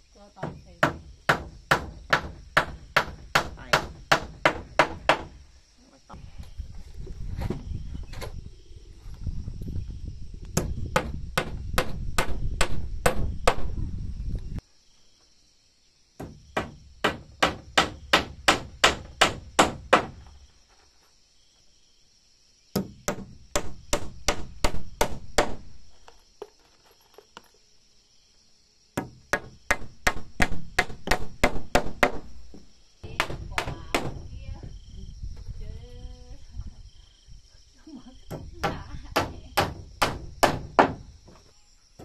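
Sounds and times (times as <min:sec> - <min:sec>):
hammer driving nails into wood: 0:16.2 - 0:20.2, 0:29.0 - 0:32.2, 0:39.2 - 0:41.0.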